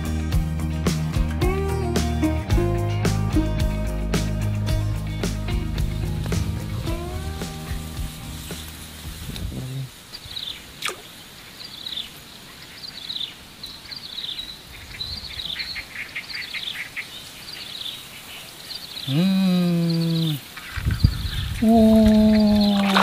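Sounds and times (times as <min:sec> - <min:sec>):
background music: 0:00.0 - 0:09.9
small birds chirping: 0:04.7 - 0:23.0.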